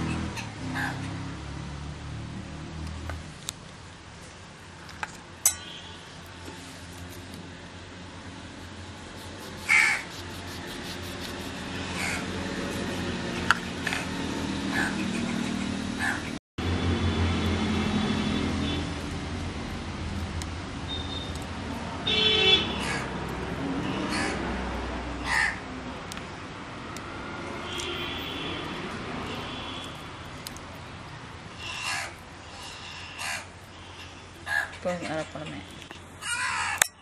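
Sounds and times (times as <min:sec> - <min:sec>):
crows cawing: 0:09.6 - 0:10.2, 0:11.8 - 0:12.3, 0:14.7 - 0:15.1, 0:22.6 - 0:23.2, 0:23.9 - 0:24.4, 0:25.2 - 0:25.7, 0:31.6 - 0:34.8, 0:36.2 - 0:36.9.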